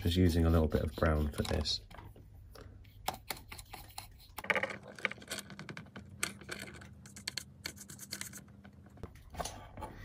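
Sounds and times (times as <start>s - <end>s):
brush scratching: 0.0s - 2.0s, 2.8s - 4.5s, 6.5s - 8.5s.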